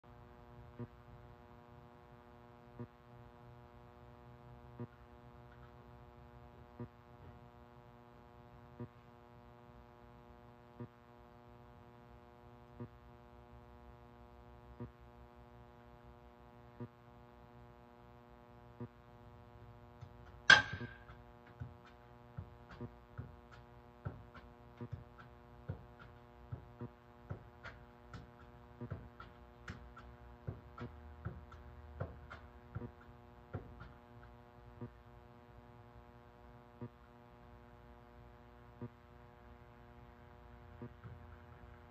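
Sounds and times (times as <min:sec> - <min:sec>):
electrical hum: 0:00.1 - 0:41.9
sharp ringing knock: 0:20.5 - 0:21.2.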